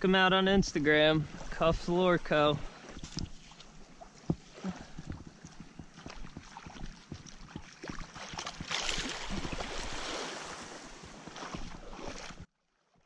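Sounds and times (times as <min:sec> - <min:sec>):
small waves lapping: 0:00.6 - 0:12.5
wave washing up sand: 0:08.8 - 0:12.2.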